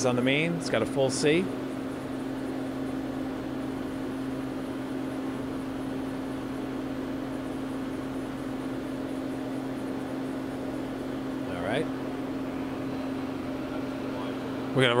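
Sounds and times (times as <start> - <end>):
machine hum with constant tone: 0.0 - 15.0.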